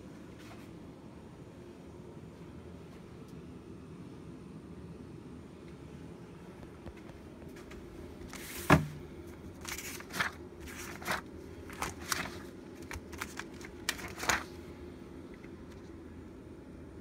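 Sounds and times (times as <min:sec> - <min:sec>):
low background hum: 0:00.0 - 0:17.0
pages flipping: 0:08.3 - 0:14.6.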